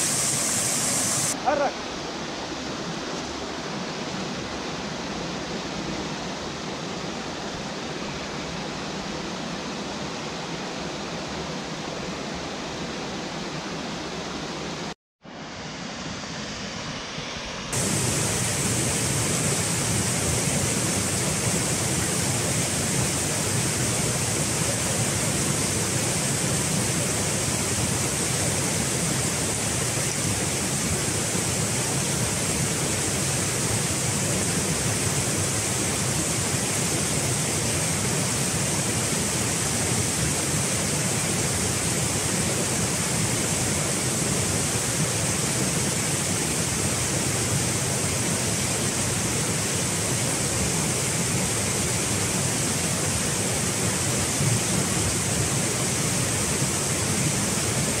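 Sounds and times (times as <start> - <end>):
stream rushing over boulders: 0.0 - 17.0, 17.6 - 58.0.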